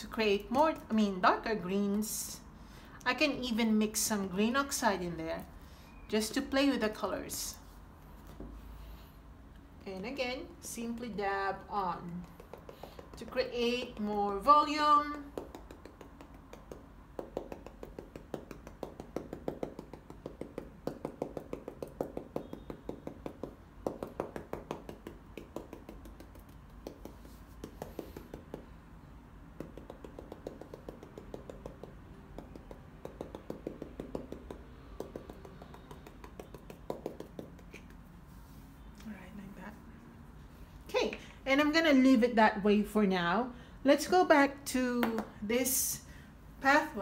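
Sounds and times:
paintbrush tapping on canvas: 12.0s - 28.7s, 29.6s - 38.0s.

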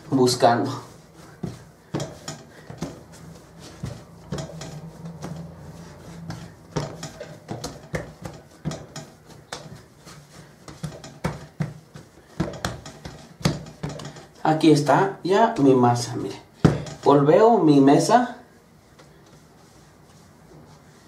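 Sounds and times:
hands patting dough on table: 0.7s - 14.3s, 16.6s - 17.3s.

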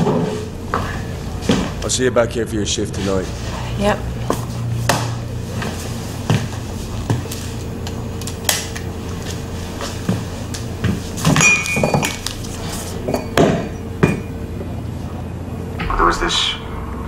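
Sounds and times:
low steady hum: 0.0s - 17.0s
crockery knocking and clinking: 11.3s - 12.2s
ringing glass clink: 11.4s - 12.1s.

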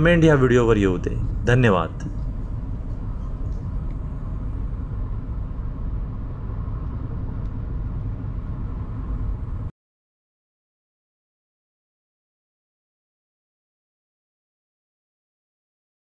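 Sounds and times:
car driving on highway: 0.0s - 9.7s.

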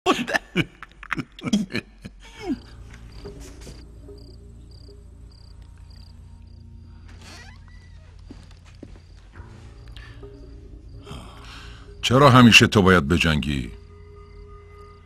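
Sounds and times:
men laughing: 0.0s - 3.8s
crickets chirping: 0.6s - 15.0s
low steady hum: 1.0s - 12.4s.

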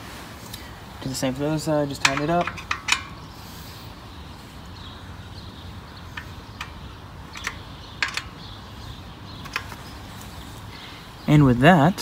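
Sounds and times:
hand tool metallic clicks: 2.0s - 3.2s, 6.2s - 8.5s.

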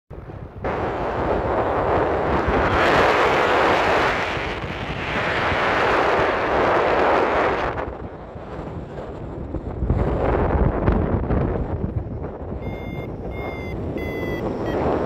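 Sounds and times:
wind rushing over microphone: 0.1s - 15.0s.

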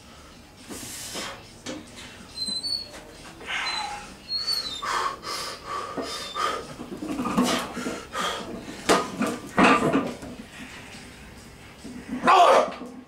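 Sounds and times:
person breathing hard: 4.8s - 6.8s, 7.4s - 8.9s.

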